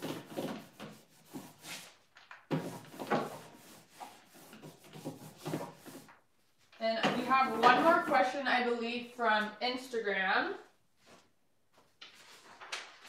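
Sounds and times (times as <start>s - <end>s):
paintbrush scraping on wood: 0.0s - 6.1s, 7.0s - 8.4s.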